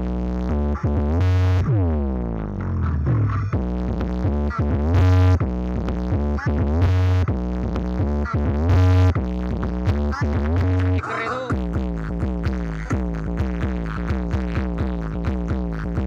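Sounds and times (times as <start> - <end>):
electronic music with heavy bass: 0.0 - 16.0.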